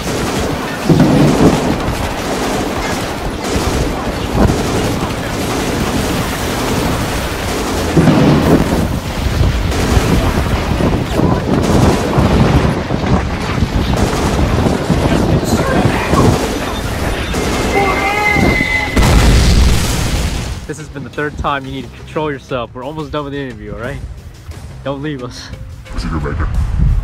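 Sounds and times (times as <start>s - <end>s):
heavy gunfire: 0.0s - 20.7s
explosions: 0.0s - 21.0s.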